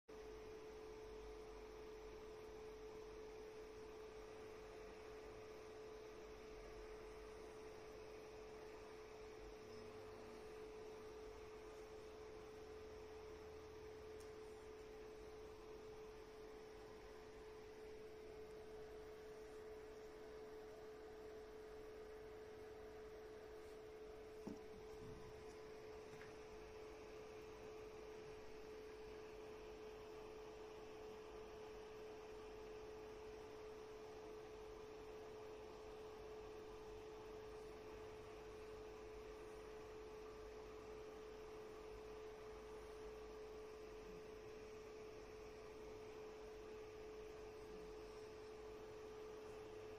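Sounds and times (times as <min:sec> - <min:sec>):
faint steady tone: 0:00.1 - 0:49.9
soft knock: 0:24.4 - 0:25.5.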